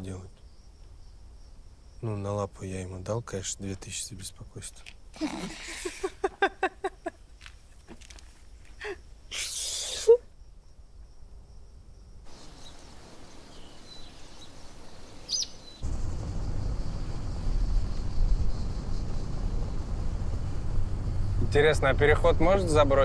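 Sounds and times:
bird chirps: 0:12.3 - 0:15.8.

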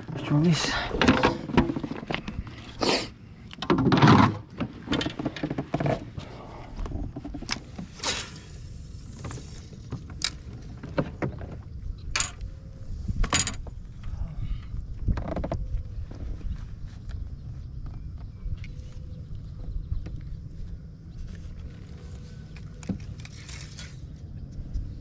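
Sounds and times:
short rushing hiss: 0:07.9 - 0:09.7.

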